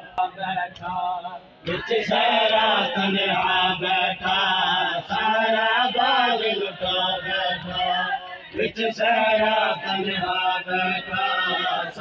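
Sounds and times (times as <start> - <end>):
men chanting through microphone: 0.0 - 12.0.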